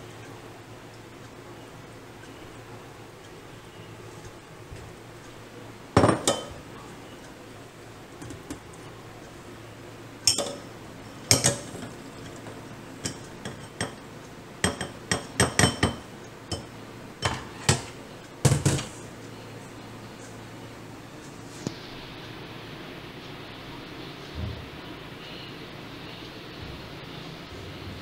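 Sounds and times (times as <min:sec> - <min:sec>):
metal strainer knocking on bowl: 0:14.6 - 0:18.9.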